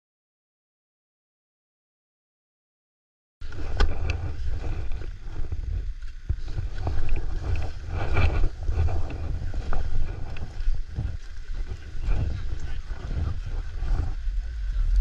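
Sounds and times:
skis scraping over snow: 3.4s - 15.0s
wind rumble on microphone: 3.4s - 15.0s.

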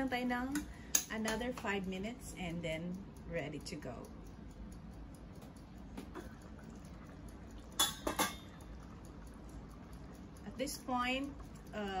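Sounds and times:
metal pot lid clinking: 7.8s - 8.4s.

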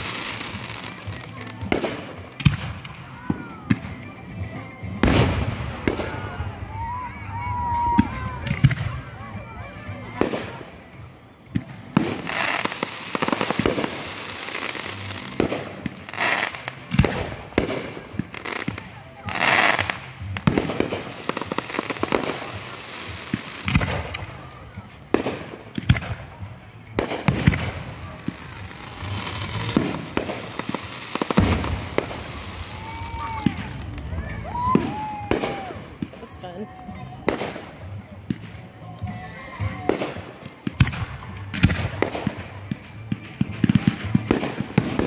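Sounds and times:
fireworks crackling: 0.0s - 45.0s
fireworks bangs: 11.6s - 36.4s.

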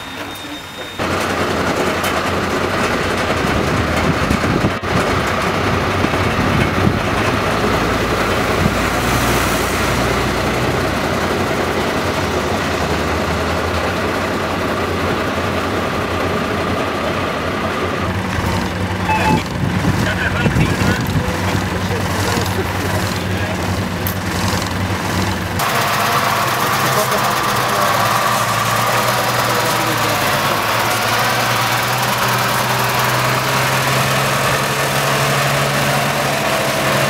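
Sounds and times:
diesel engines idling: 0.0s - 37.0s.

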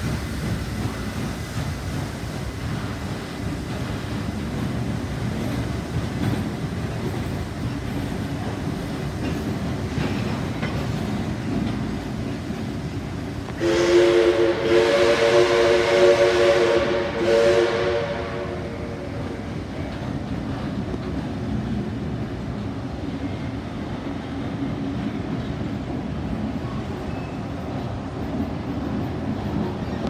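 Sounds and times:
train carriages rolling rumble: 0.0s - 30.0s
steam locomotive chime whistle: 13.6s - 19.2s.

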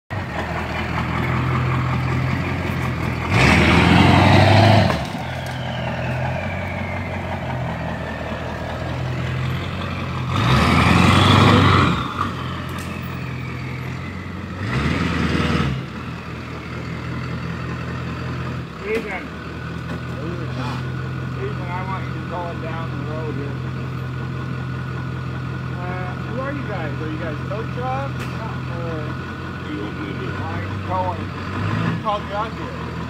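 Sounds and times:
truck engine idling and revving: 0.1s - 33.0s.

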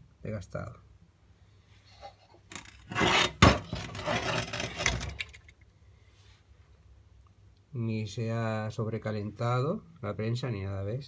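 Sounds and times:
scraping handling noise: 2.5s - 5.5s.

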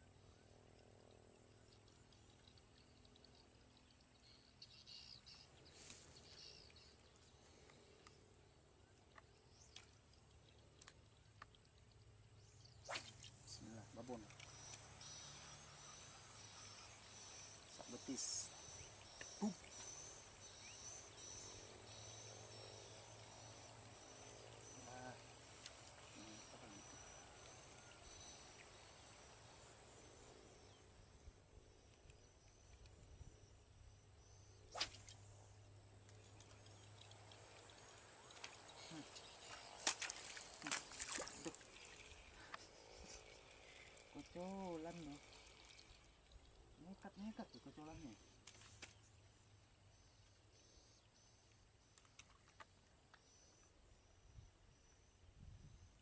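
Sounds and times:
faint bird chirps: 0.0s - 56.0s
faint ticks: 9.0s - 12.1s
faint calls: 12.8s - 30.8s, 36.4s - 48.3s
high-pitched insect drone: 12.9s - 31.3s, 36.4s - 48.2s.

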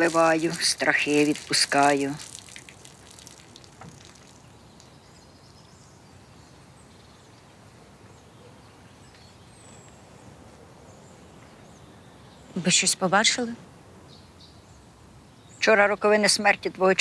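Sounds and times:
faint steady hiss: 0.0s - 8.2s.

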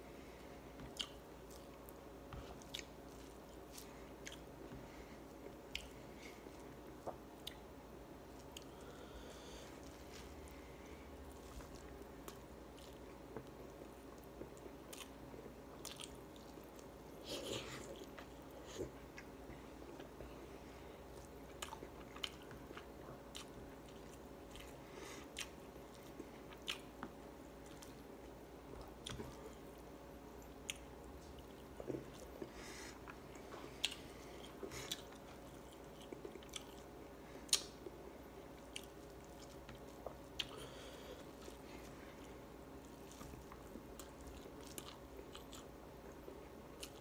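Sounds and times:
faint steady hum: 0.0s - 47.0s
man chewing food: 0.2s - 47.0s.

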